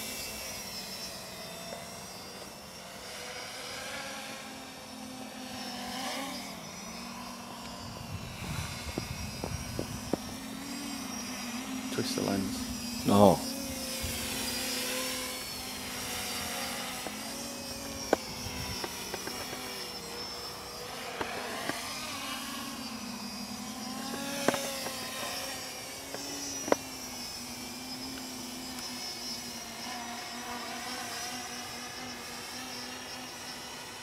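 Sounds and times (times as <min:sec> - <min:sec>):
quadcopter propeller whine: 0:00.0 - 0:34.0.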